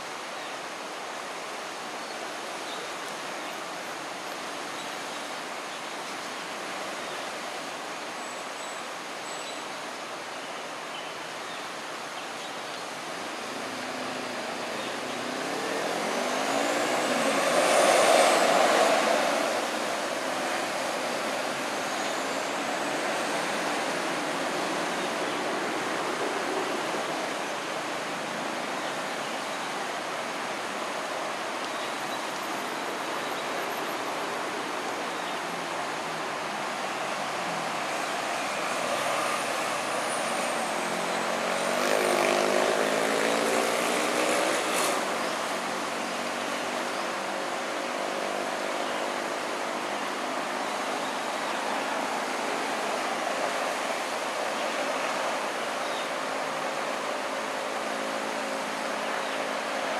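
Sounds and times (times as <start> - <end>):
flowing water: 0.0 - 59.9
outdoor traffic rush: 0.0 - 59.9
vehicle passing: 15.1 - 20.8, 38.2 - 46.6.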